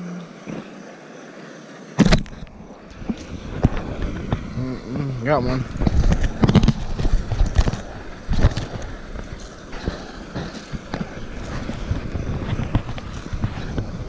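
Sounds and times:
fish handling knocks and rustles: 0:05.7 - 0:14.0.

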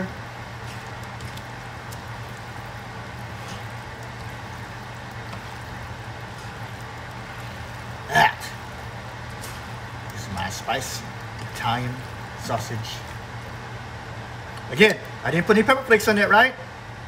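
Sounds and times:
tongs tapping and stirring: 0:00.0 - 0:13.6
low steady hum: 0:00.0 - 0:17.0.

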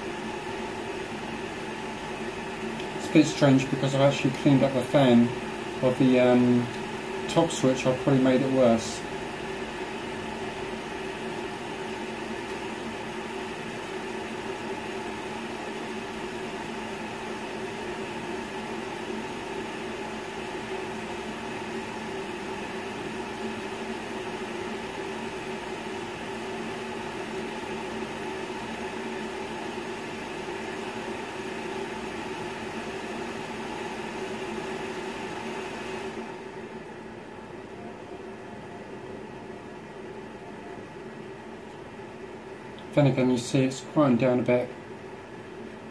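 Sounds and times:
cooling fans whirring: 0:00.0 - 0:45.9.

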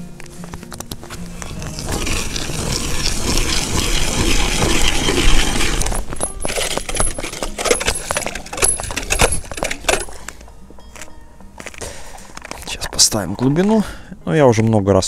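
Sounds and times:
ice auger grinding scrape: 0:01.3 - 0:10.2
ice chips crunching and clinking: 0:01.4 - 0:10.3.

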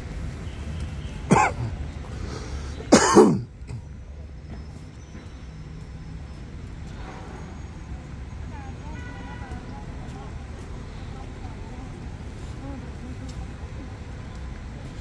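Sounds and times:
low street hum: 0:00.0 - 0:15.0
person coughing: 0:01.3 - 0:01.7, 0:02.9 - 0:03.8.

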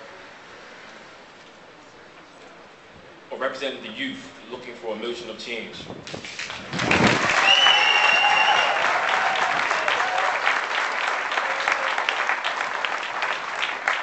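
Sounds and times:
crowd applauding: 0:06.3 - 0:14.0.

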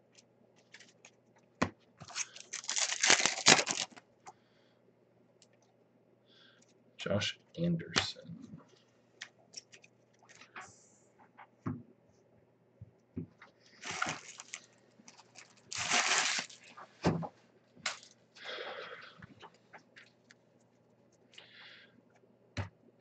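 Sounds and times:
trading cards rustling: 0:02.0 - 0:04.0, 0:13.8 - 0:16.9.

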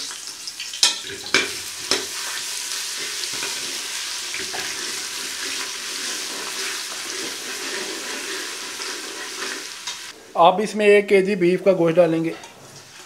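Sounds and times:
ghee sizzling in a pot: 0:00.0 - 0:10.2
metal spoon stirring: 0:03.0 - 0:10.1.

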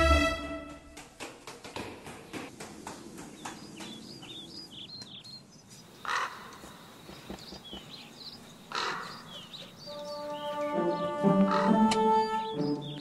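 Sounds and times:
footsteps on stairs: 0:00.7 - 0:04.4
small birds chirping: 0:02.0 - 0:13.0
crow cawing: 0:06.0 - 0:06.8, 0:08.7 - 0:09.3, 0:11.5 - 0:11.8.

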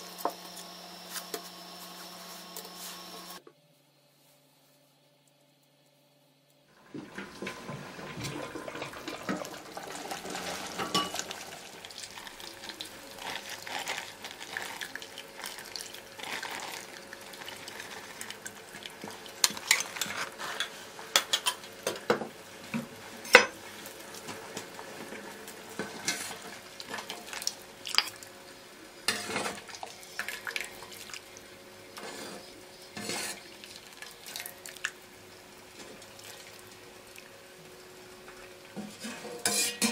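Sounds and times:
metal utensils clinking in pot: 0:08.3 - 0:11.6, 0:19.4 - 0:22.2, 0:38.8 - 0:39.9.

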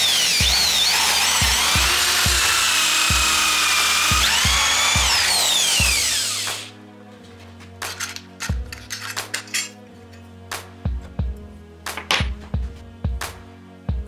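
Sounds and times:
electric drill whining: 0:00.0 - 0:06.7
background music with steady beat: 0:00.0 - 0:14.0.

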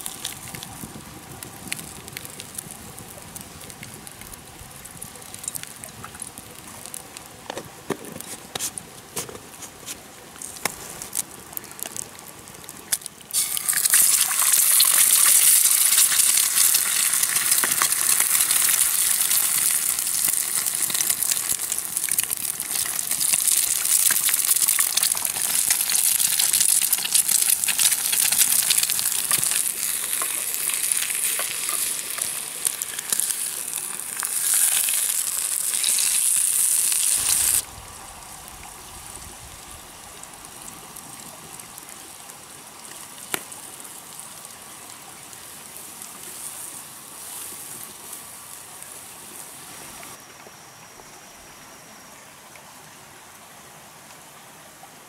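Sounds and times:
quiet steady hiss: 0:00.0 - 0:55.0
food sizzling in pan: 0:13.3 - 0:37.7.

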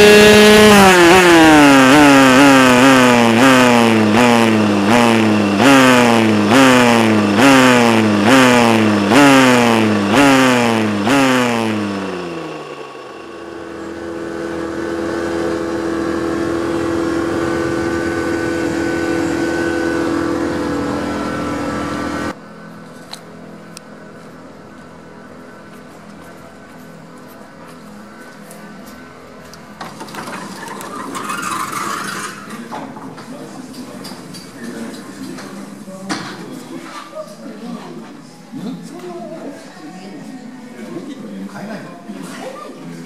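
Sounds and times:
steady held tones: 0:00.0 - 0:22.3
motorcycle engine revving: 0:00.0 - 0:22.4, 0:29.8 - 0:32.7.

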